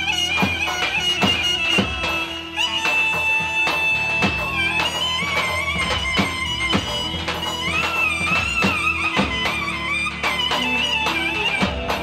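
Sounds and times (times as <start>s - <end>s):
reedy wind instrument melody: 0.0s - 12.0s
steady drum beat: 0.0s - 12.0s.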